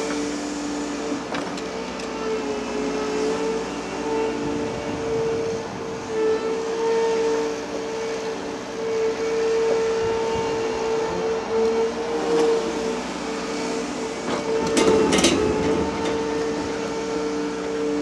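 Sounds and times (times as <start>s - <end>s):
excavator hydraulic whine: 0.0s - 18.0s
clattering knocks and scraping: 14.3s - 16.4s.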